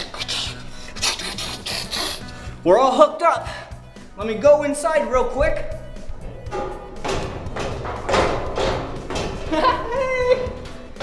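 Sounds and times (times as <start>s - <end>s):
footsteps on metal stairs: 4.2s - 11.0s.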